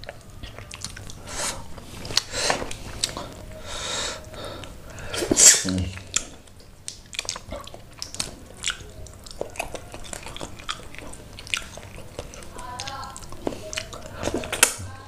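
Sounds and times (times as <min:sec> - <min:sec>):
wet chewing and lip-smacking: 0:00.0 - 0:15.0
sharp mouth clicks: 0:04.1 - 0:14.8.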